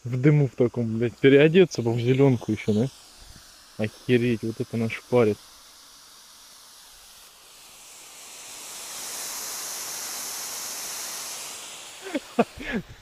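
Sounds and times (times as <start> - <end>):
smoke bomb hissing: 0.0 - 13.0.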